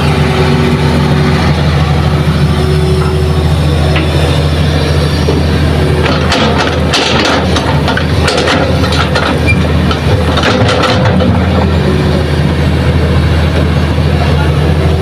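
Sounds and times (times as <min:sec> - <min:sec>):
excavator diesel engine running: 0:00.0 - 0:15.0
soil and stones clattering into truck: 0:06.0 - 0:11.4.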